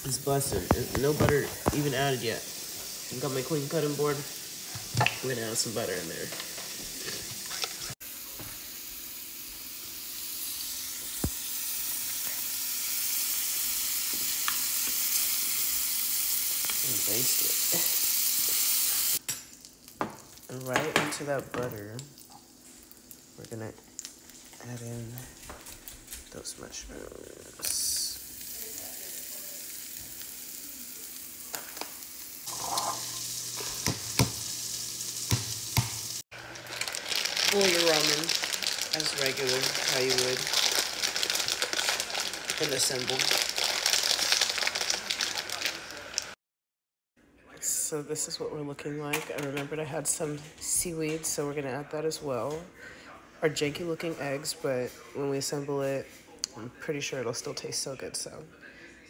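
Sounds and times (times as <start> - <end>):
steak sizzling in a pan: 0.0 - 20.7, 27.6 - 46.4.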